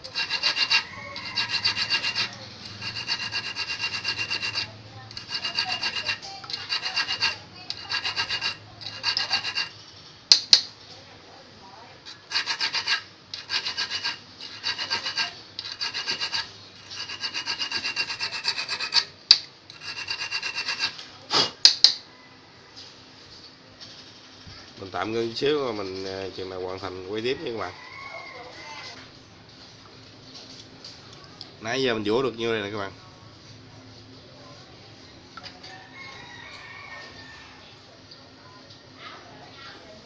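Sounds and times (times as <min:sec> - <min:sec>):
metal file rasping on hook: 0:00.0 - 0:09.8, 0:12.1 - 0:21.0.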